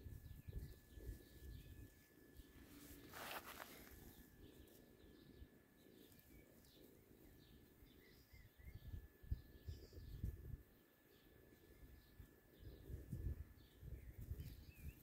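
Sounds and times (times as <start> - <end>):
short rustle: 2.6 - 4.2.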